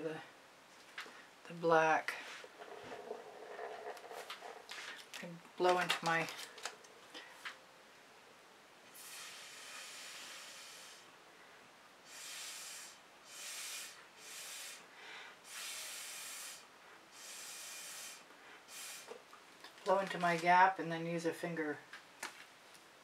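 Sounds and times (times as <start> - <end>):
air blown through a straw: 8.9 - 11.1, 12.0 - 19.2.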